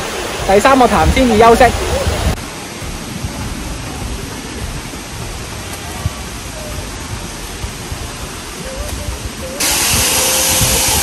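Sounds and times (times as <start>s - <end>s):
rushing stream water: 0.0s - 11.0s
low thumps on microphone: 2.1s - 11.0s.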